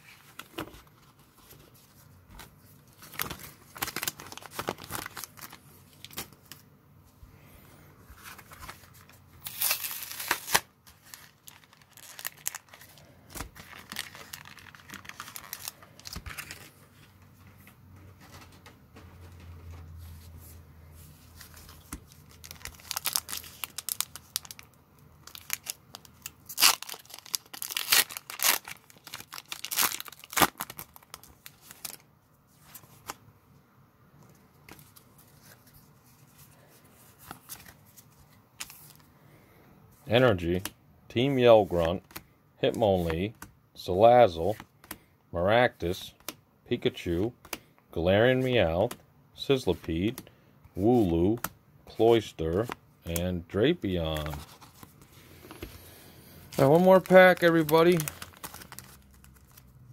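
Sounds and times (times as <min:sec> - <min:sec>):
cards and sleeves rustling: 0:00.0 - 0:07.2, 0:07.8 - 0:33.2, 0:34.2 - 0:39.2, 0:40.0 - 0:59.9
foil wrapper crinkling and tearing: 0:02.9 - 0:06.6, 0:08.2 - 0:16.7, 0:21.6 - 0:32.0, 0:56.5 - 0:59.8.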